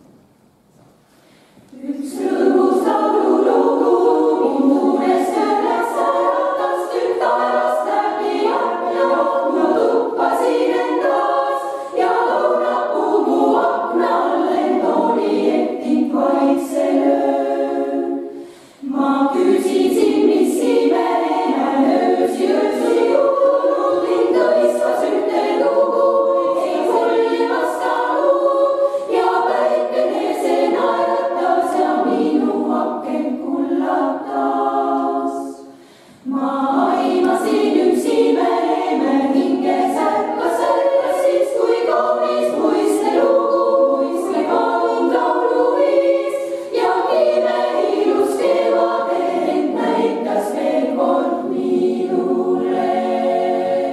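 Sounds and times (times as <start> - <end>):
women's choir singing a cappella: 1.7 - 53.9.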